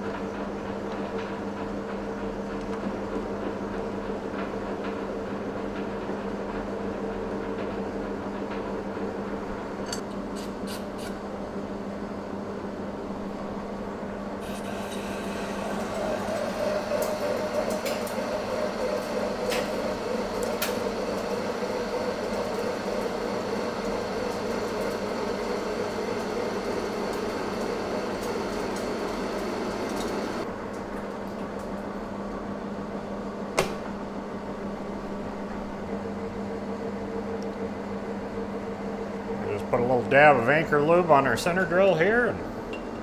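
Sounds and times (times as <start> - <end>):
lathe humming: 12.2 - 30.5
lathe tool cutting steel: 14.4 - 30.4.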